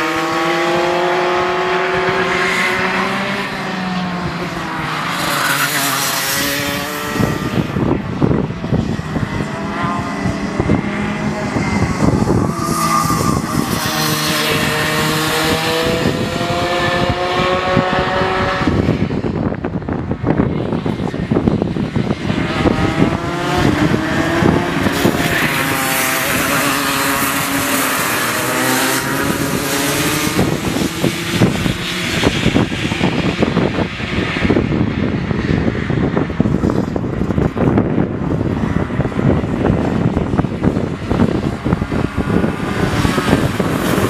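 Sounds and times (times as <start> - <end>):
racing kart engines: 0.0 - 44.0
wind buffeting microphone: 0.0 - 44.0.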